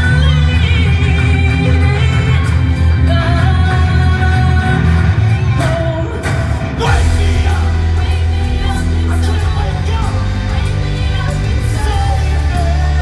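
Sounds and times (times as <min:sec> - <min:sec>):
loud rock music with singing: 0:00.0 - 0:13.0.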